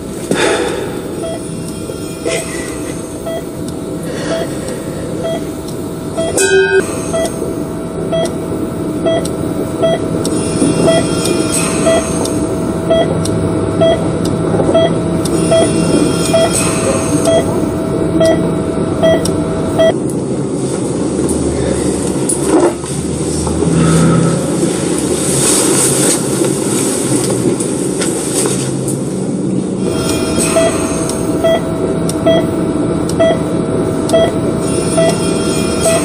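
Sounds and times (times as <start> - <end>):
steady rushing hum: 0.0 - 36.0
patient monitor beeps: 1.0 - 20.0, 29.9 - 36.0.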